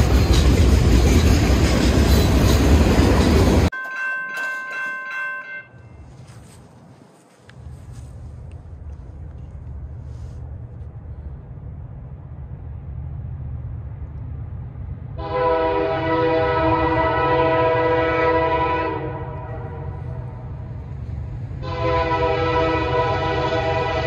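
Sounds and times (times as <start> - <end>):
low rumble of train: 0.0 - 24.0
train horn blast: 15.2 - 20.4, 21.6 - 24.0.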